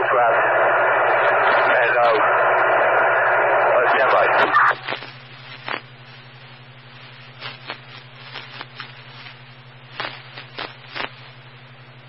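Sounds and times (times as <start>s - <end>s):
radio scanner hiss: 0.0s - 12.0s.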